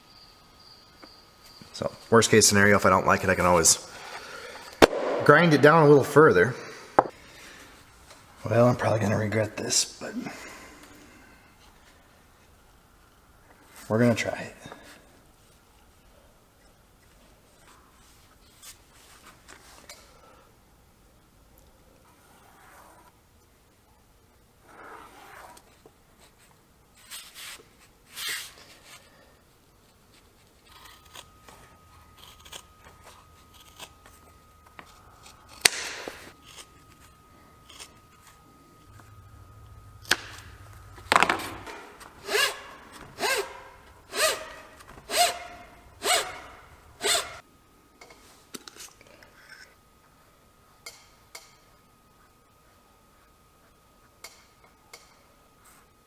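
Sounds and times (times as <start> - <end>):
snips cutting leather: 30.6 - 31.3, 34.8 - 37.0.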